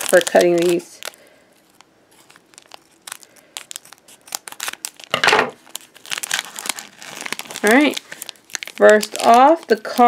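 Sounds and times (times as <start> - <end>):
foil crinkling: 0.0 - 10.0.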